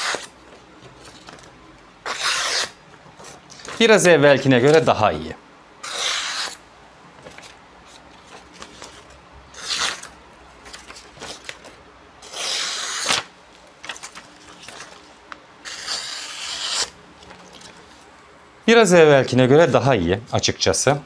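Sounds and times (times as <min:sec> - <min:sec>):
knife slicing paper: 0:00.0 - 0:00.3, 0:02.0 - 0:02.8, 0:05.8 - 0:06.6, 0:09.6 - 0:10.1, 0:12.2 - 0:13.3, 0:15.6 - 0:17.0
paper rustling and crinkling: 0:00.5 - 0:01.6, 0:07.2 - 0:11.8, 0:13.0 - 0:15.4.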